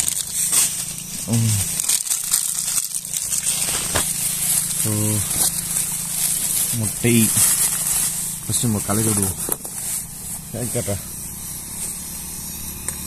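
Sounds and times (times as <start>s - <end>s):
plastic packet crinkling: 0.0s - 10.2s
person murmuring: 1.2s - 1.8s.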